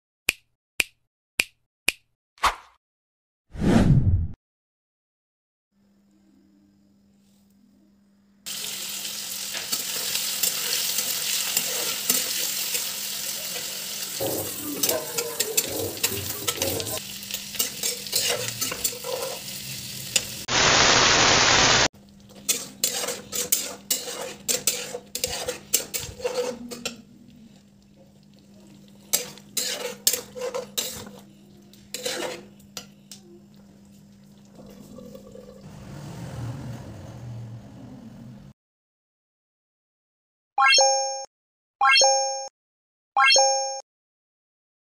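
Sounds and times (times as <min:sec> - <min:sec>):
food sizzling in a pan: 0:08.5 - 0:35.1
spoon scraping a metal pan: 0:09.6 - 0:12.9, 0:13.5 - 0:19.5, 0:22.3 - 0:27.0, 0:29.0 - 0:31.3, 0:31.9 - 0:32.9
static hiss: 0:20.5 - 0:21.9.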